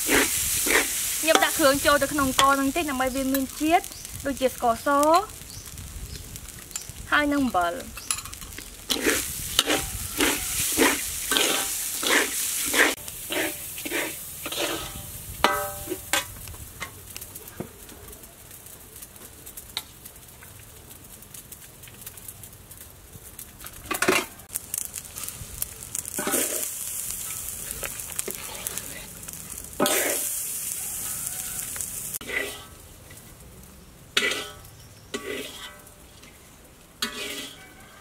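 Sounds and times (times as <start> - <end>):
metal spatula scraping rice in pan: 0.0 - 2.6, 8.0 - 16.3, 23.9 - 32.8, 34.2 - 36.4, 37.0 - 38.0
light sizzle: 0.0 - 38.0.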